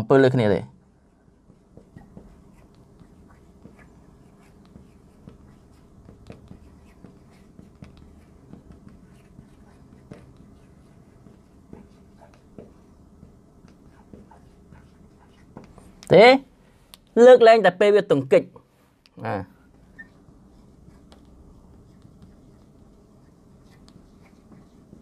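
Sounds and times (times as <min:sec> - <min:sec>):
low room hum: 0:00.0 - 0:25.0
marker squeaking on board: 0:01.5 - 0:16.2, 0:19.6 - 0:25.0.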